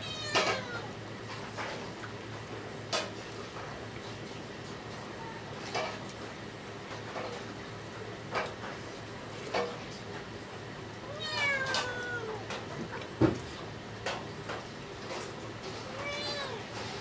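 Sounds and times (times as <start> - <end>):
cat meowing: 0.0 - 0.9, 11.1 - 12.4, 15.8 - 16.7.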